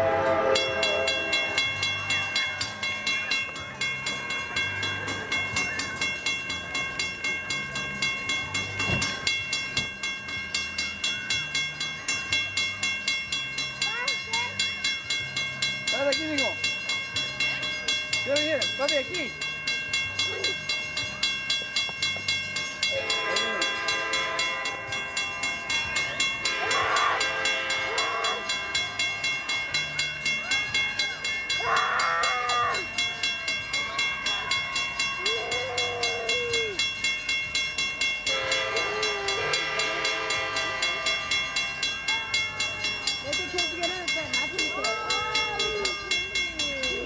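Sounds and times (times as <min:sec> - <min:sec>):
locomotive air horn blasts: 0:00.0 - 0:01.8, 0:22.9 - 0:25.0, 0:26.4 - 0:28.5, 0:38.3 - 0:41.6
crossing bell dinging: 0:00.0 - 0:47.0.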